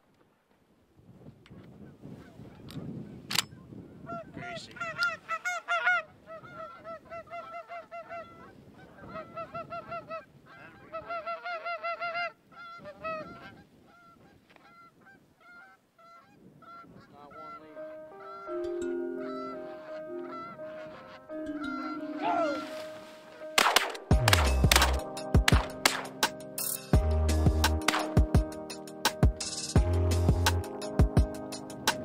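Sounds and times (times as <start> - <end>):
geese honking: 4.1 - 26.3
sharp crack: 23.6 - 26.8, 27.6 - 28.4.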